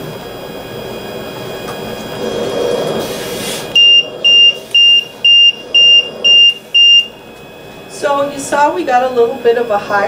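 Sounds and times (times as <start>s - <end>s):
high-pitched alarm beeping: 3.1s - 10.0s.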